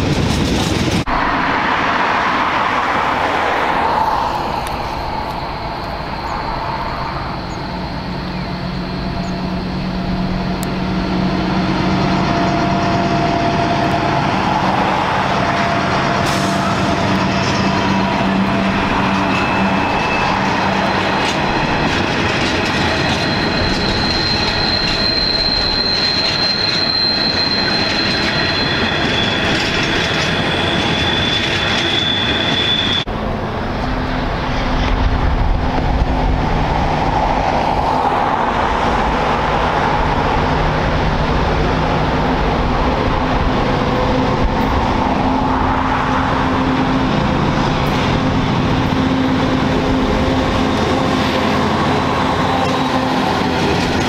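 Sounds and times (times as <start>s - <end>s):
diesel locomotive engine droning: 0.0s - 54.0s
rumble of train wheels: 0.0s - 54.0s
wheel squeal of wagons: 3.6s - 33.1s, 43.0s - 54.0s.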